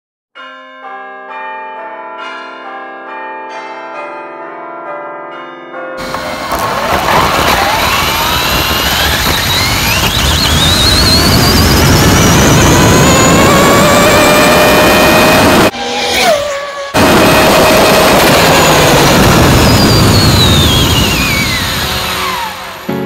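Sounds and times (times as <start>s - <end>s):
chiming bells melody: 0.4s - 6.9s
car engine accelerating hard: 6.0s - 15.7s, 17.0s - 23.0s
wind and road noise: 6.0s - 23.0s.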